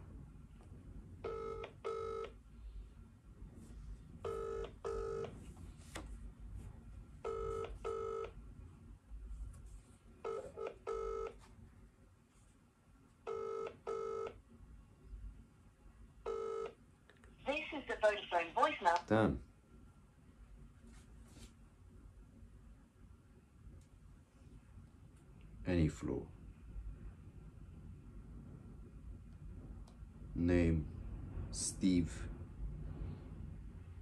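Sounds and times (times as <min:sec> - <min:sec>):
phone ringback tone: 0:01.2 - 0:02.3, 0:04.3 - 0:05.3, 0:07.2 - 0:08.3, 0:10.2 - 0:11.4, 0:13.3 - 0:14.3, 0:16.3 - 0:16.7.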